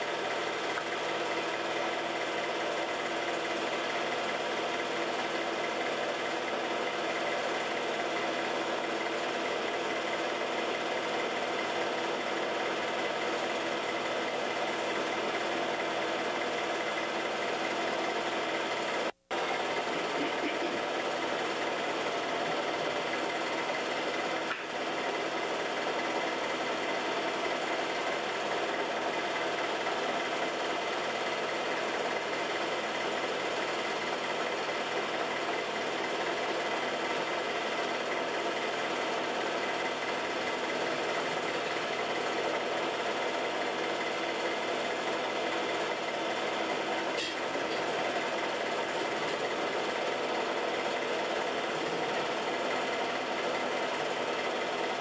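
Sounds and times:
film projector whirring: 0.0 - 55.0.

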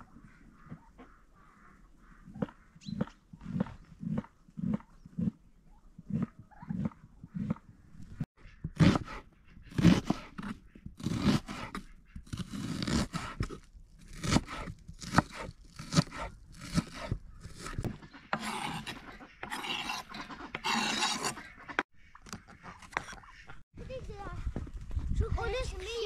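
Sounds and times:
knife chopping onion on wood: 8.7 - 17.9
knife scraping across board: 8.8 - 21.9.

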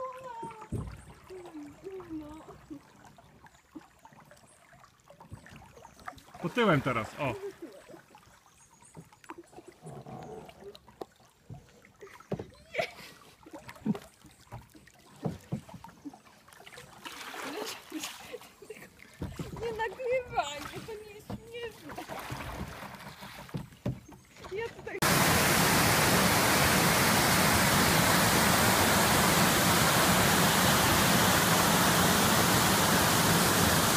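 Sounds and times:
paddles dipping in water: 0.0 - 33.9
short splashes: 5.5 - 8.0, 14.8 - 33.9
water rushing over rocks: 6.4 - 7.4, 25.0 - 33.9.

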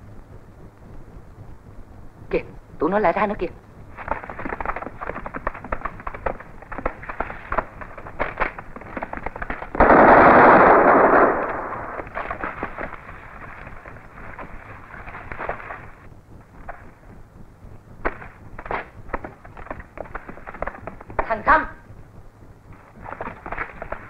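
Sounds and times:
rifle and machine-gun fire: 9.4 - 13.0
big explosion: 9.8 - 12.2.

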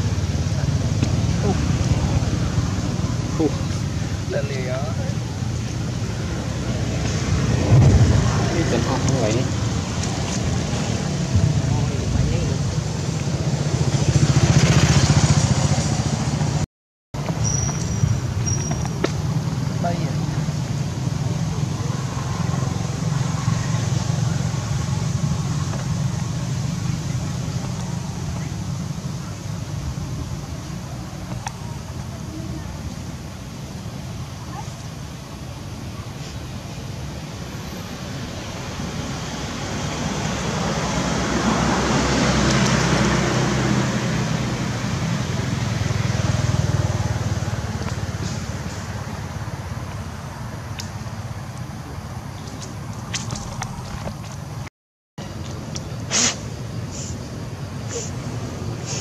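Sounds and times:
vehicle passing by: 0.0 - 16.6, 19.7 - 31.0, 37.8 - 50.6
steady low rumble: 5.2 - 14.1.

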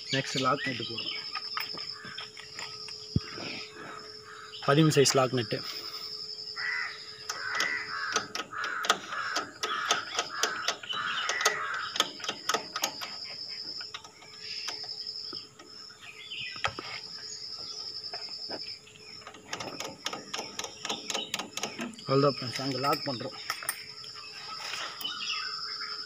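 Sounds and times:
crows cawing: 1.8 - 2.5, 3.7 - 4.6, 6.6 - 12.5.

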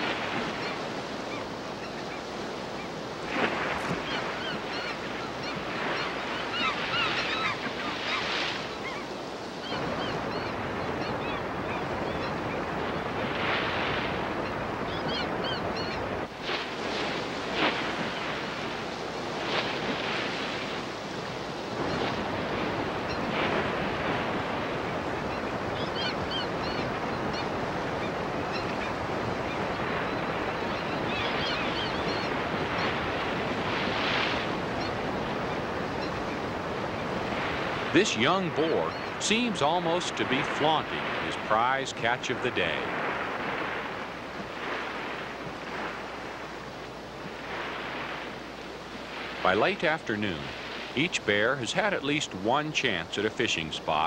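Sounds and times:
whitewater rushing: 0.0 - 0.5, 36.6 - 44.0
gulls calling: 0.0 - 54.0.

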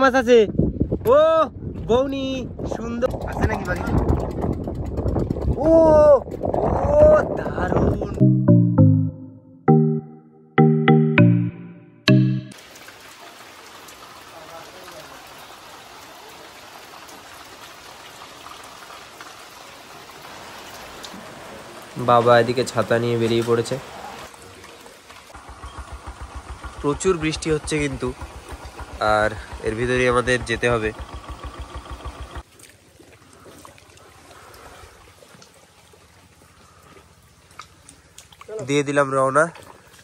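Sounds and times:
motorcycle engine running: 2.7 - 8.2, 25.4 - 32.4
heavy rain on wet paving: 12.6 - 25.4
faint trickle of water: 12.6 - 25.8, 32.4 - 40.0.

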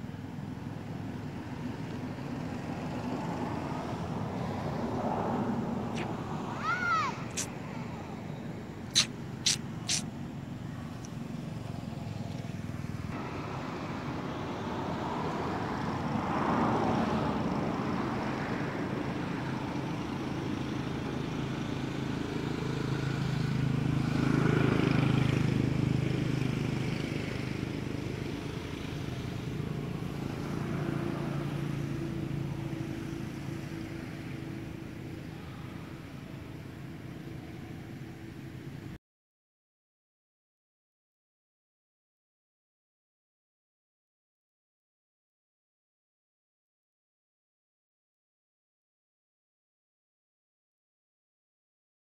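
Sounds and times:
vehicles passing: 0.0 - 39.0.

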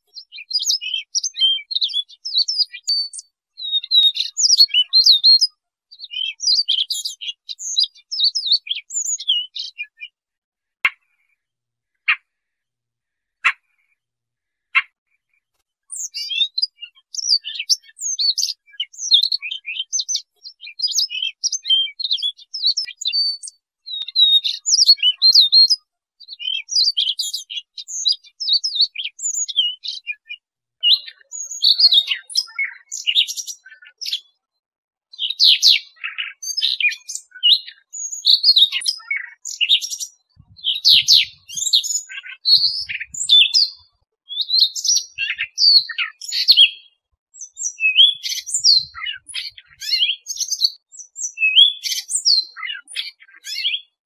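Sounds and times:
bird warbling song: 0.0 - 10.2, 10.9 - 34.4, 35.1 - 54.0.

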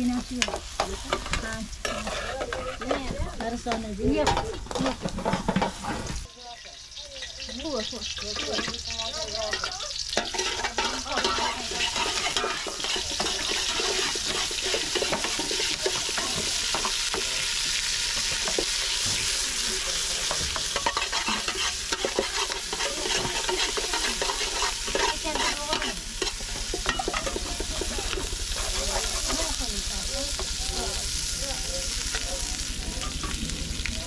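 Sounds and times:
food sizzling in a pot: 0.0 - 34.0
spoon scraping a pot: 0.4 - 6.2, 9.5 - 17.2, 20.2 - 29.5.

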